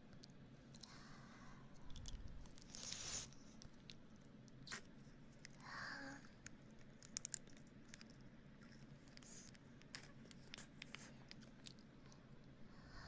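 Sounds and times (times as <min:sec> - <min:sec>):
soft breath: 0:00.8 - 0:01.9, 0:12.0 - 0:13.0
wet mouth clicks and pops: 0:04.7 - 0:04.9.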